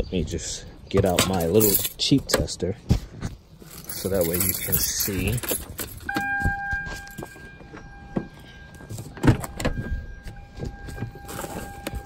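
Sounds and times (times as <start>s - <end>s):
hand tools knocking and clinking: 1.0s - 2.4s
faint steady high tone: 6.0s - 12.0s.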